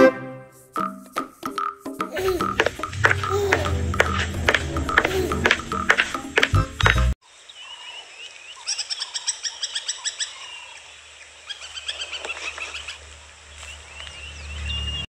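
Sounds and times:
low rumble: 2.8s - 7.2s.

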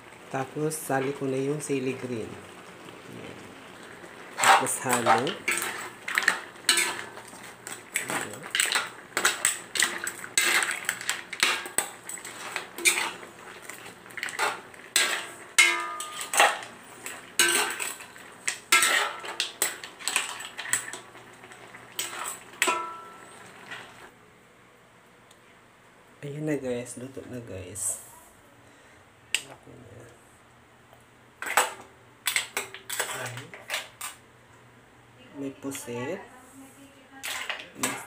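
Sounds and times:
metal spoon scraping a wok: 4.3s - 18.1s, 18.7s - 21.0s, 22.0s - 23.2s, 32.3s - 34.2s.

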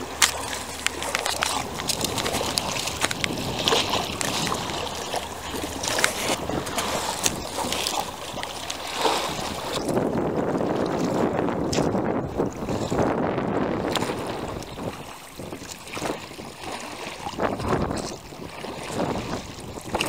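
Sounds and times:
oars knocking in rowlocks: 0.0s - 12.1s
water splashing from oars: 0.0s - 20.0s.

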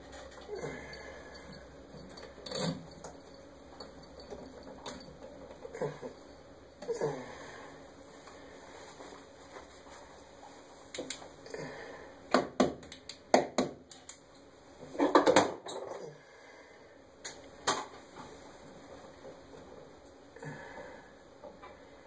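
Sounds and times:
hands clicking and rattling wires: 0.0s - 5.7s, 10.9s - 11.3s, 12.3s - 14.4s.

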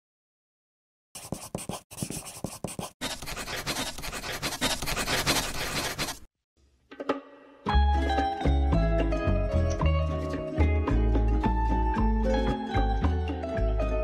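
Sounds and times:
pen scratching on paper: 1.2s - 6.3s.

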